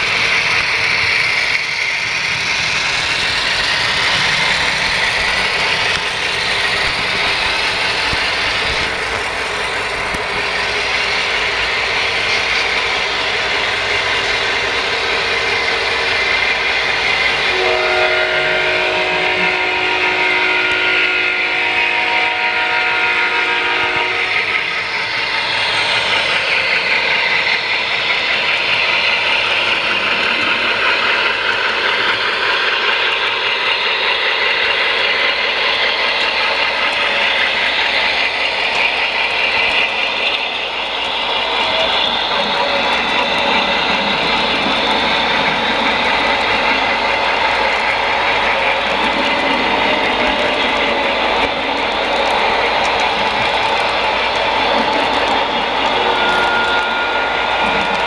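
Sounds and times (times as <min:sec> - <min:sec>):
model locomotives running: 0:00.0 - 0:58.0
multi-tone locomotive horn: 0:17.4 - 0:24.6, 0:55.9 - 0:58.0.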